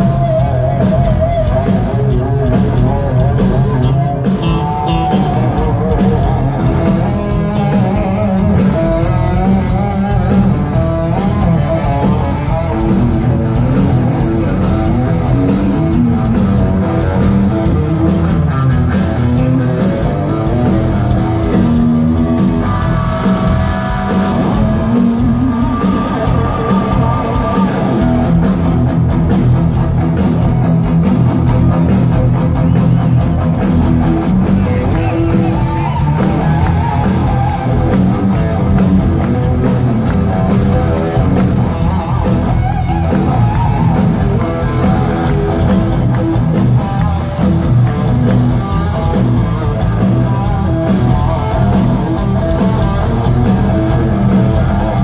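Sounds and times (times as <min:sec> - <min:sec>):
bass: 0:00.0 - 0:55.0
lead electric guitar bending notes: 0:00.0 - 0:55.0
steady drum beat: 0:00.0 - 0:55.0.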